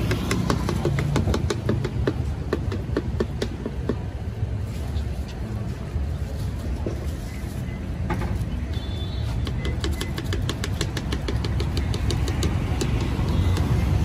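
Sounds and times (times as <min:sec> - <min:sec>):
busy street traffic rumble: 0:00.0 - 0:14.0.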